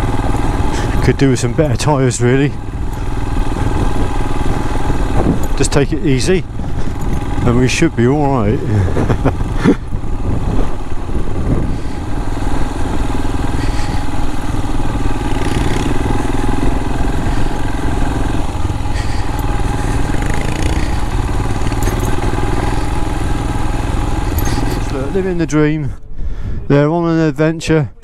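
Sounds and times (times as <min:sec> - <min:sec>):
motorcycle engine running: 0:00.0 - 0:26.0
wind rushing over microphone: 0:02.6 - 0:21.8, 0:24.7 - 0:27.0.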